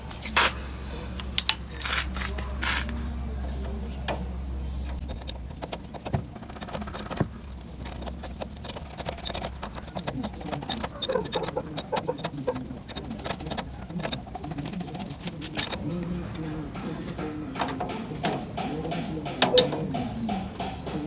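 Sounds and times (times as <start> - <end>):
wrench clicking against nut: 4.9 - 15.8.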